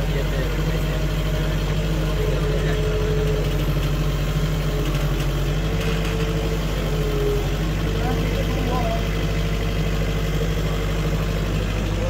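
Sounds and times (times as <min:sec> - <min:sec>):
loader engine idling: 0:00.0 - 0:12.0.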